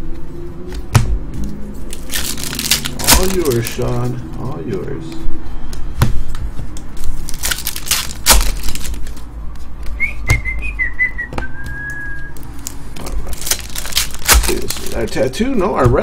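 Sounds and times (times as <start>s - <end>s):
cards clicking and snapping: 1.0s - 4.5s, 6.7s - 9.3s, 11.9s - 15.3s
person whistling: 10.0s - 12.4s.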